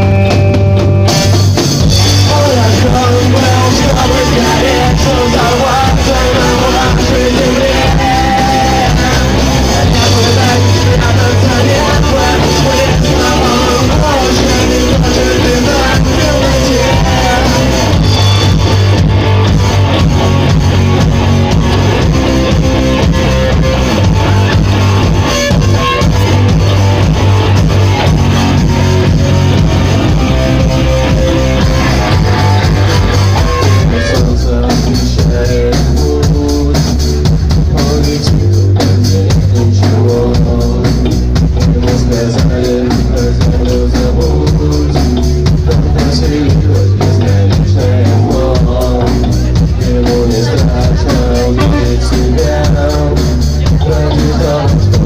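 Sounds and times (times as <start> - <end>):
bass guitar: 0.0 - 55.0
drum kit: 0.0 - 55.0
electric guitars: 0.0 - 55.0
person singing into microphone: 2.1 - 18.3, 30.8 - 55.0.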